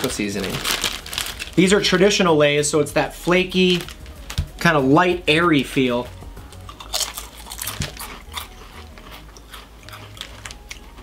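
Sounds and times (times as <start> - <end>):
people crunching potato chips: 0.0 - 2.2, 6.5 - 11.0.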